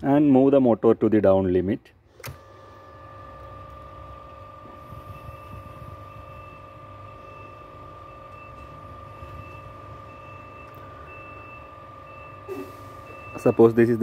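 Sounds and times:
door motor humming and whining: 2.1 - 14.0.

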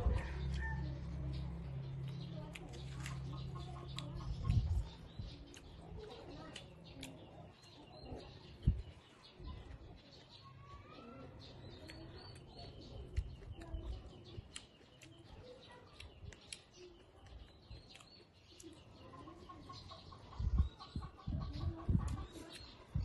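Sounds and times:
chewing and crunching greens: 0.0 - 10.5, 11.2 - 23.0
birds chirping: 0.0 - 23.0
wet mouth clicks: 11.7 - 15.2.

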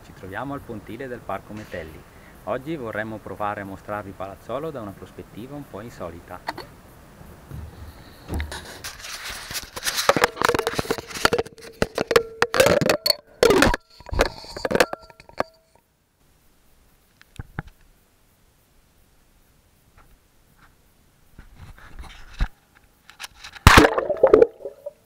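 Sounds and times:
small clicks: 17.1 - 17.9.

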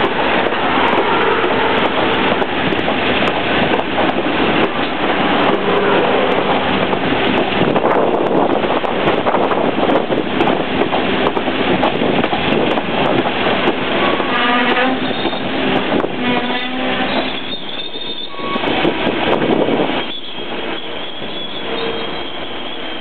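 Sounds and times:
train wheels rumbling on rails: 0.0 - 23.0
wheels and brakes squealing: 15.0 - 15.5, 16.4 - 18.8, 20.0 - 23.0.

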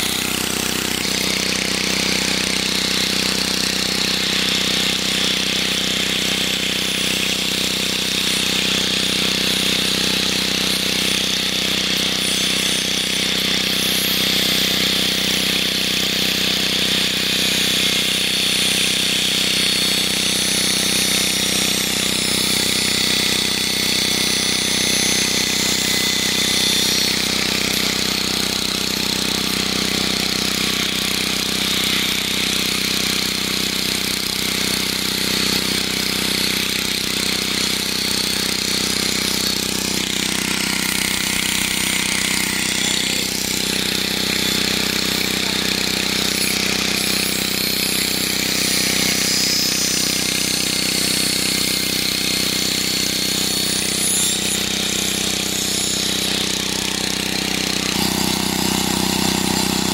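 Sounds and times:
angle grinder whining on steel: 0.0 - 59.9
low motor hum: 56.1 - 59.9.

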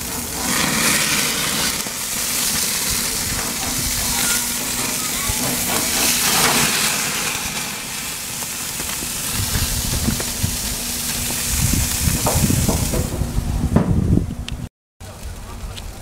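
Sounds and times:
burgers sizzling on grill: 0.0 - 13.8
low rumbling: 0.0 - 16.0
knocks: 12.2 - 14.0.

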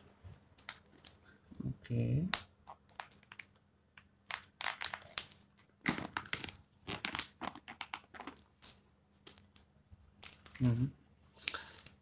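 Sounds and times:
plastic lid crinkling and crackling: 4.3 - 8.5.

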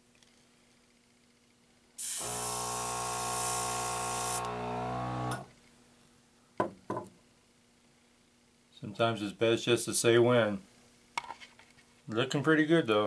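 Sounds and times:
spray paint hissing: 2.0 - 4.7
steady humming tone: 2.1 - 5.5.

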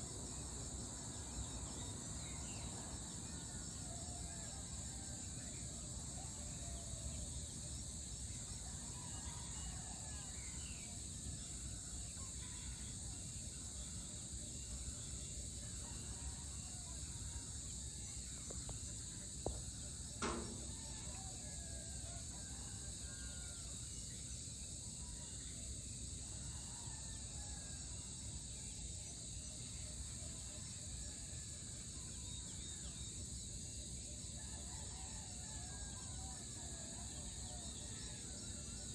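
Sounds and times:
insect chorus: 0.0 - 38.9
brief knocks: 20.2 - 21.1.

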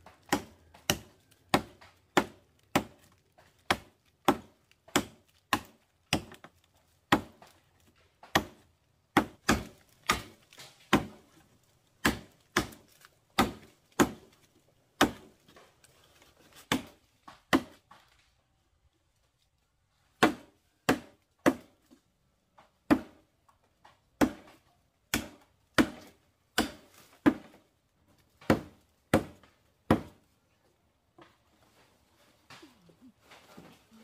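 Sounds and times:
blade chopping wood: 0.0 - 11.4, 12.0 - 15.7, 16.5 - 18.0, 20.2 - 21.8, 22.8 - 23.2, 23.8 - 27.6, 28.3 - 30.2.

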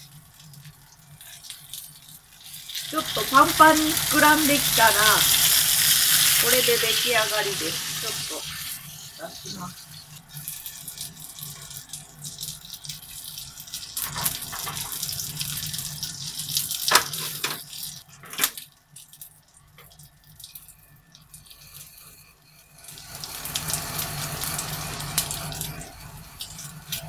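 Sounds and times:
food sizzling in a frying pan: 0.0 - 27.0.

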